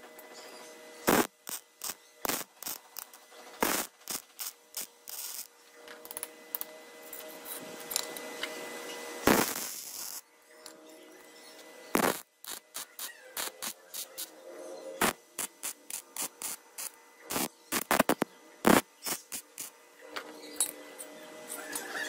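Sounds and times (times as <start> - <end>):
steady hum: 0.0 - 21.5
welder arc crackling: 1.0 - 6.7, 9.2 - 10.2, 11.9 - 14.4, 15.0 - 19.8.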